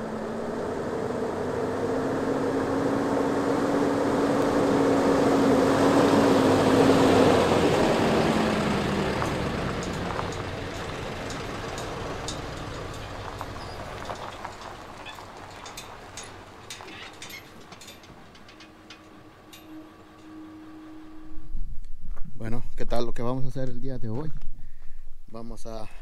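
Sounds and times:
pickup truck towing trailer passing: 0.0s - 21.5s.

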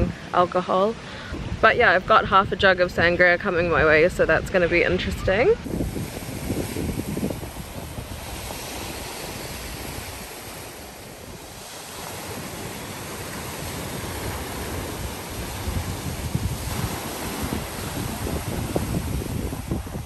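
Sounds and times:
wind on microphone: 0.0s - 0.2s, 1.3s - 20.0s
small waves breaking on boulders: 5.6s - 20.0s.

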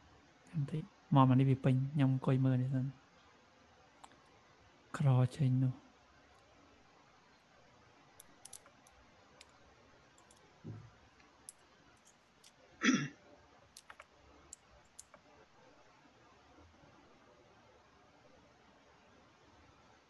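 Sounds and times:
computer mouse clicking: 8.2s - 9.6s, 10.2s - 10.4s, 13.7s - 15.3s.

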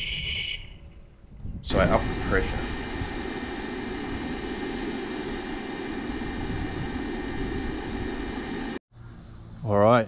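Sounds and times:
electric blower motor whine: 1.7s - 8.8s.

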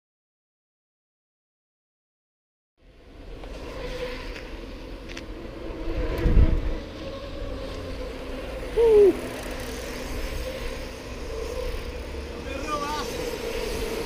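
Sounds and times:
bike tires rolling: 2.8s - 14.0s
wind rush: 5.3s - 7.0s.

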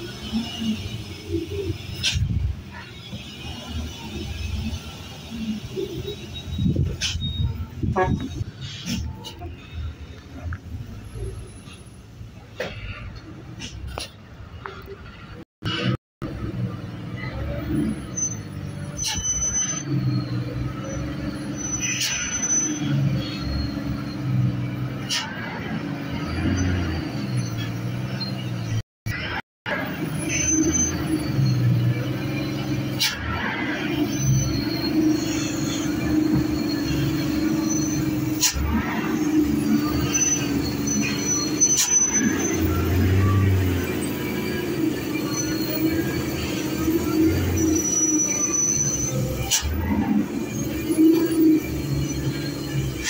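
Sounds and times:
brakes squealing: 0.0s - 53.0s.

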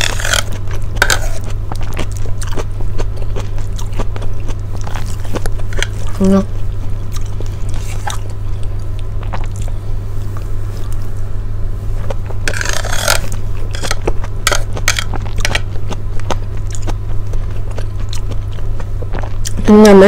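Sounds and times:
metal spoon scraping a plate: 0.0s - 1.4s, 12.5s - 15.0s
steady low hum: 0.0s - 20.0s.

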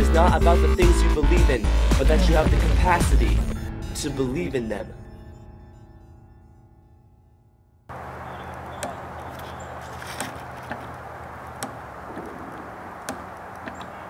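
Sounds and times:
music: 0.0s - 7.9s
spring rider knocking and clicking: 8.4s - 14.0s.

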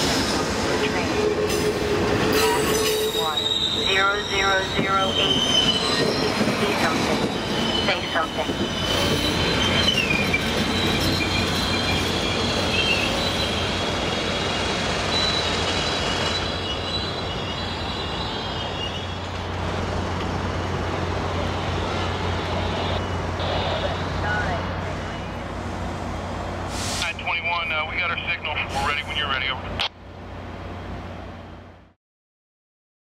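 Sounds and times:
train rumble and clatter: 0.0s - 31.9s
train wheels squealing: 1.5s - 19.4s.

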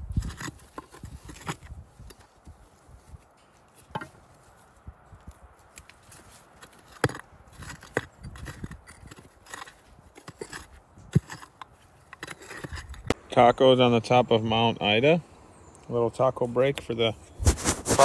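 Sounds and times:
digging tool scraping clay: 0.0s - 4.4s, 5.8s - 13.2s, 17.2s - 18.0s.

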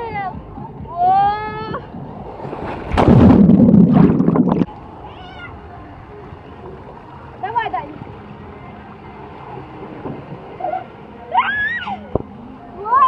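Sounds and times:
loud rushing noise: 2.5s - 4.7s.

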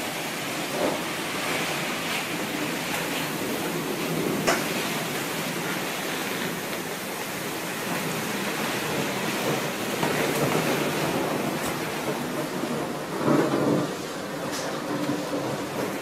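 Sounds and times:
heavy rain hissing: 0.0s - 16.0s.

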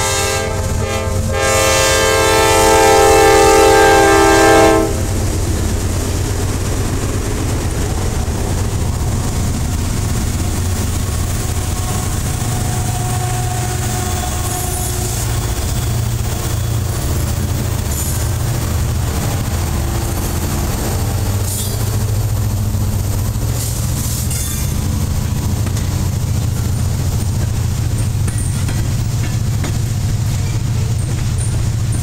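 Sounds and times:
diesel locomotives rumbling: 0.0s - 32.0s
train wheels rolling on rails: 0.0s - 32.0s
high wheel squeals: 11.5s - 17.1s.

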